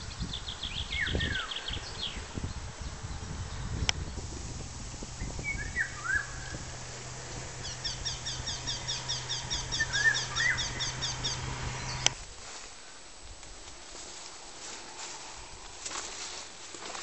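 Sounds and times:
nightingale singing: 0.0 - 12.2
steady low hum: 1.8 - 12.2.

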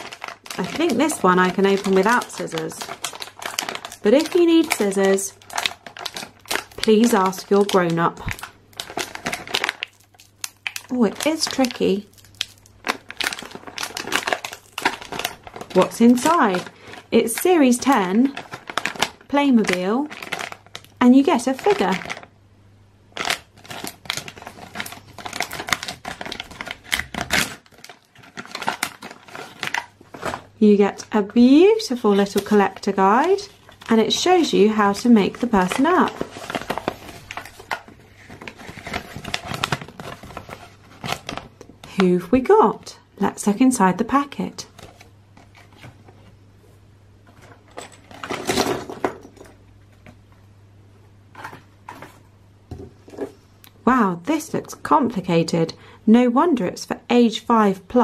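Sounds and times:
foil pouch crinkling: 0.0 - 22.3, 23.2 - 30.5, 31.8 - 42.0
plastic parts clattering onto table: 47.4 - 49.6.

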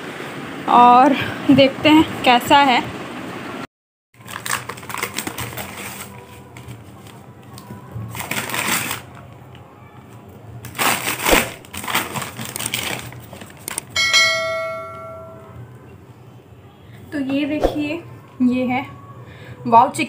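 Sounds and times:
paper crinkling and tearing: 4.2 - 7.2, 8.1 - 9.2, 10.6 - 14.0
bright bell chime: 14.0 - 15.6.

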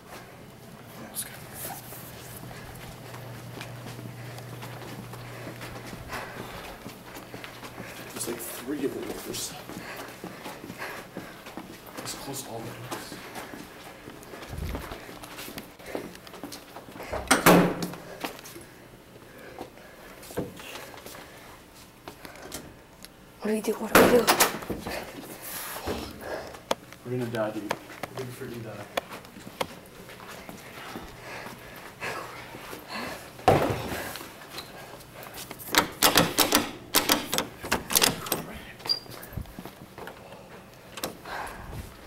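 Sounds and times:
heavy doors banging shut: 17.1 - 18.0, 35.7 - 38.6
door hardware knocking: 35.8 - 38.4.

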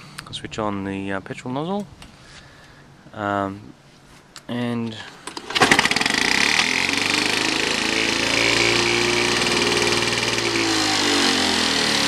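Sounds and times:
lawn mower engine running: 5.2 - 12.0.

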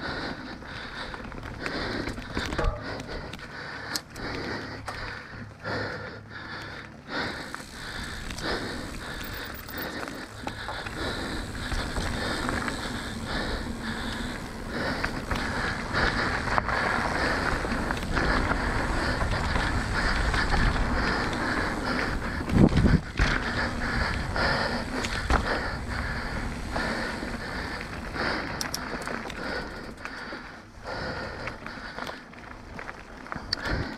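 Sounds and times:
knobby tyres on loose dirt: 0.0 - 33.9
bike rattling and knocking: 0.8 - 5.6, 7.4 - 33.9
wind noise on microphone: 15.2 - 26.8.

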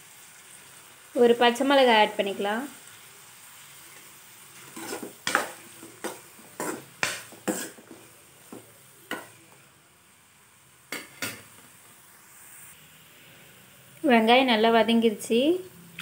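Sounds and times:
onions sizzling in oil: 0.0 - 16.0
metal spoon scraping pan: 4.6 - 8.1.

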